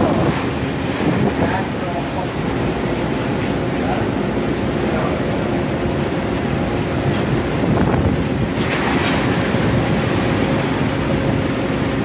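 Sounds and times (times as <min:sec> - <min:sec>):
wind on microphone: 0:00.0 - 0:02.0, 0:06.9 - 0:10.4
boat engine humming: 0:00.0 - 0:12.0
sea water churning: 0:00.0 - 0:12.0
water splash: 0:06.9 - 0:12.0.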